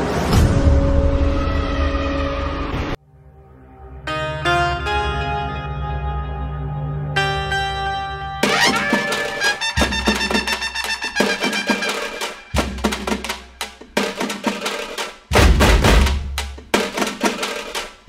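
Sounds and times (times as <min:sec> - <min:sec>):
music with steady drum beat: 0:08.4 - 0:18.0.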